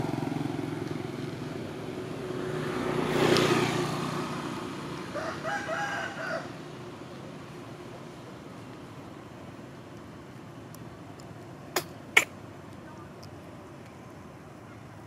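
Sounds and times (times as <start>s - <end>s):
vehicle passing: 0.0s - 10.6s
rooster crowing: 5.1s - 6.7s.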